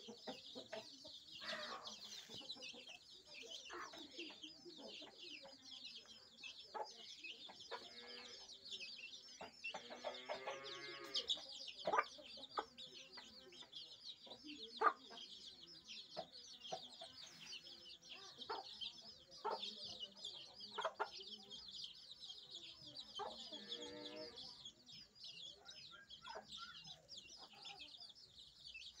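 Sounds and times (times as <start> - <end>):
hen clucking: 0.0 - 8.6, 9.3 - 13.7
chicks peeping: 0.0 - 29.0.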